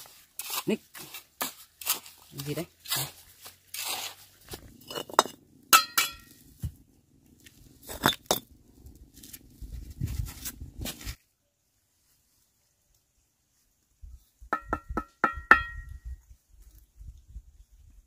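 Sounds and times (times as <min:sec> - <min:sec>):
hard objects clinking: 0:04.7 - 0:06.4.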